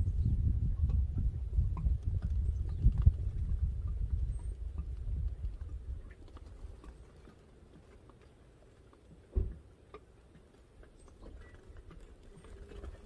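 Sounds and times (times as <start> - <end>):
wind buffeting microphone: 0.0 - 6.8
faint ticks and taps: 0.8 - 13.0
thump: 9.3 - 9.6.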